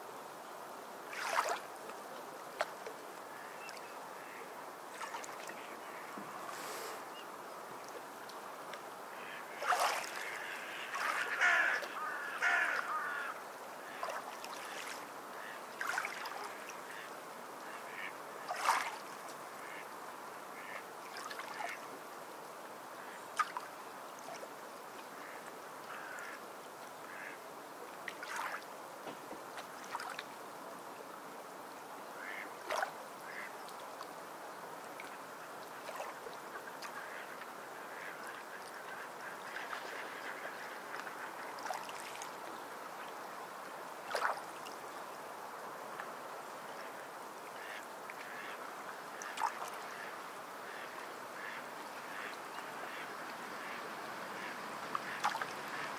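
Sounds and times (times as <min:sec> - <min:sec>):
background hiss: 0:00.0 - 0:55.9.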